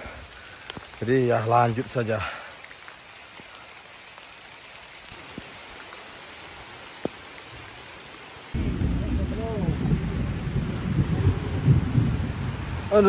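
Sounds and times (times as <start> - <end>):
steady rain falling: 0.0 - 13.0
loud low rumble: 8.6 - 12.8.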